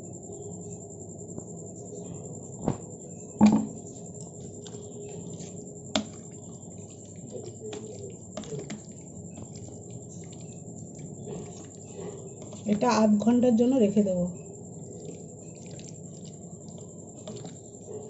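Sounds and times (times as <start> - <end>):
jar knocking against ceramic plate: 3.4 - 3.8
wet squelching of hands mixing paste: 3.8 - 18.0.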